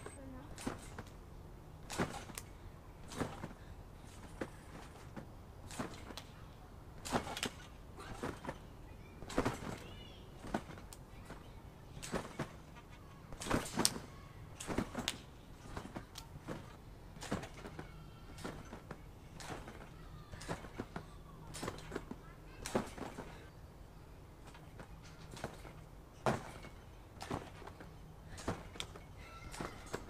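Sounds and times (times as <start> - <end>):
trampoline thumps and creaks: 0.0 - 30.0.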